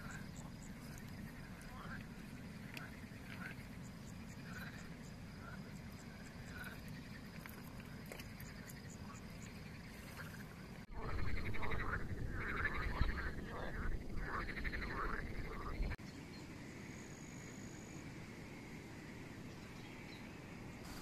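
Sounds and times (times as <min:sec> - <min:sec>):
faint outdoor background: 0:00.0 - 0:21.0
frogs croaking: 0:00.0 - 0:21.0
low rumble: 0:10.9 - 0:16.0.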